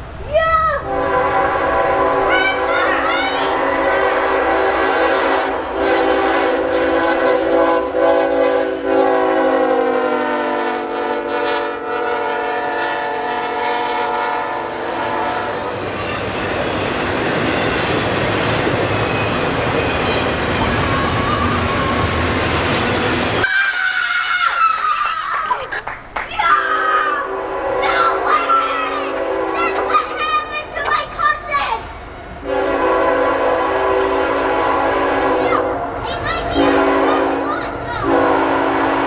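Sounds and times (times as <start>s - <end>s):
train cars rumbling on rails: 0.0s - 23.5s, 26.0s - 39.0s
locomotive air horn chord: 0.8s - 15.9s, 26.6s - 28.3s, 29.1s - 29.9s, 32.4s - 35.9s, 36.6s - 37.4s, 38.0s - 39.0s.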